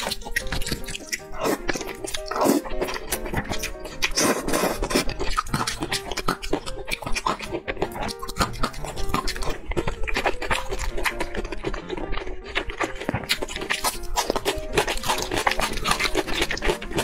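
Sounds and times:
wet mouth clicks: 0.0 - 11.3
background music: 0.0 - 17.0
chewing noodles: 0.0 - 17.0.

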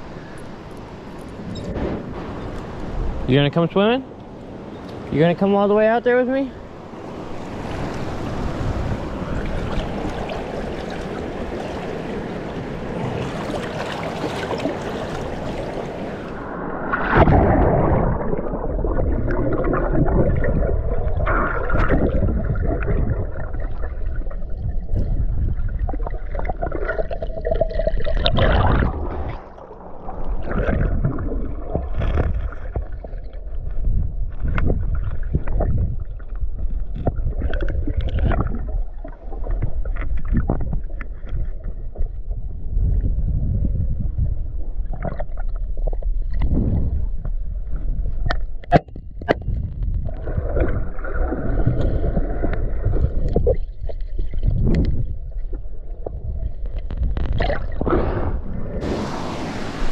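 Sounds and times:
underwater river rumbling: 0.0 - 59.9
underwater clicks and knocks: 30.4 - 42.4, 48.1 - 50.8, 51.6 - 57.9.

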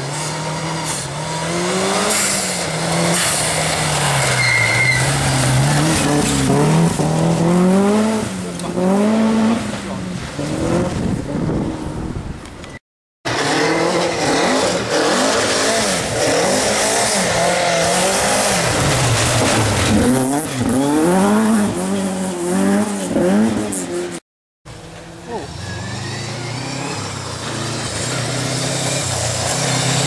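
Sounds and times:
rally car driving off: 0.0 - 12.1, 13.3 - 24.1, 24.7 - 30.0
rally car engine revving: 0.0 - 12.2, 13.3 - 30.0
tyres spraying gravel: 1.8 - 7.0, 14.2 - 20.6, 25.4 - 30.0.

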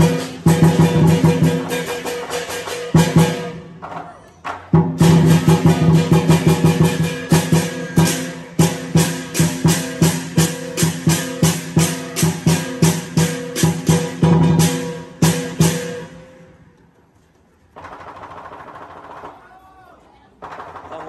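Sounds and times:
drum beating: 0.0 - 16.4.

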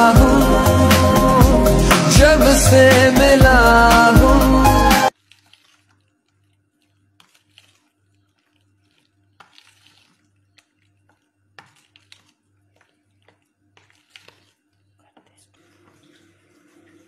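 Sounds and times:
spoon stirring wet marinade: 5.1 - 16.8.

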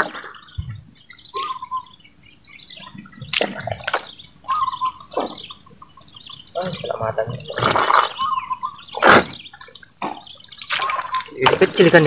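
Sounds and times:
birds chirping: 0.0 - 12.0
fish splashing in water: 10.5 - 12.0.

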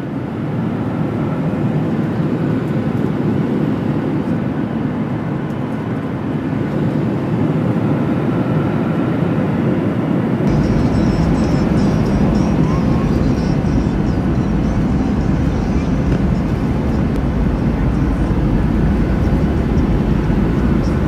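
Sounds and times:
jet engines and rolling noise: 0.0 - 21.0
deeper rumble: 10.5 - 21.0.

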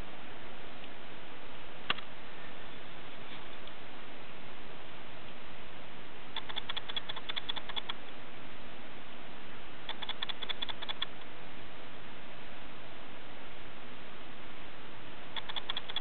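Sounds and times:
steady hiss: 0.0 - 16.0
rapid ticking: 6.3 - 8.0, 9.9 - 11.2, 15.3 - 16.0.

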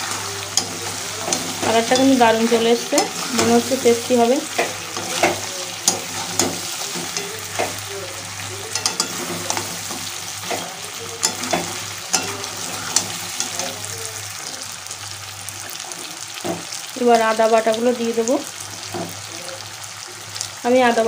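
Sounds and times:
metal ladle scraping a pan: 0.0 - 14.4
curry sizzling in oil: 0.0 - 21.0.

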